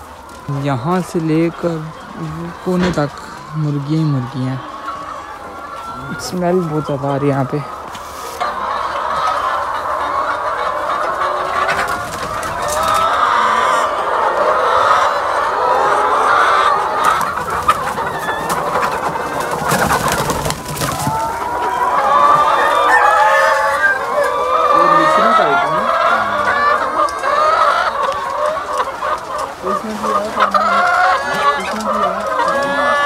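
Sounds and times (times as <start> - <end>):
hens clucking and cackling: 0.0 - 33.0.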